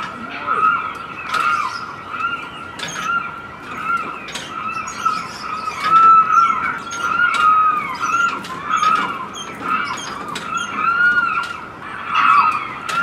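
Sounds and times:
clock mechanism squeaking: 0:02.7 - 0:11.6.

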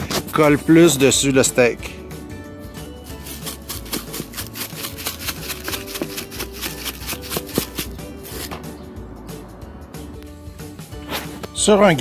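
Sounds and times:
spice shaker rattling: 0:03.1 - 0:08.4.

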